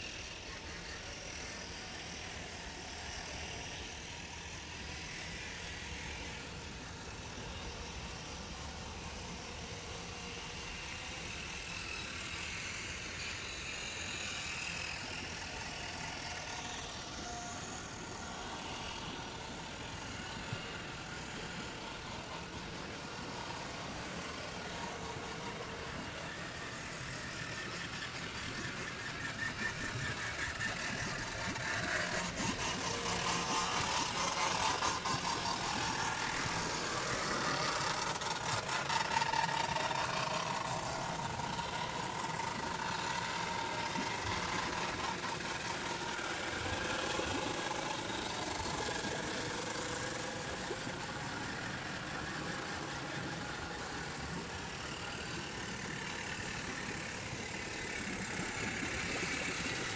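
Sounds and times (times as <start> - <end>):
rushing canal water: 17.7 - 59.9.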